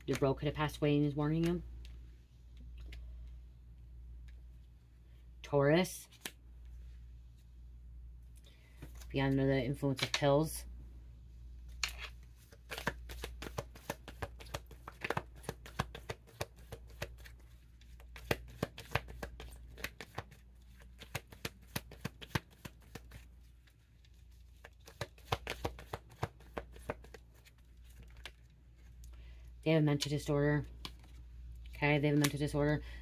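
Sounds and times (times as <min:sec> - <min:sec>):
cards being shuffled: 0:06.1 - 0:06.4, 0:11.7 - 0:29.0.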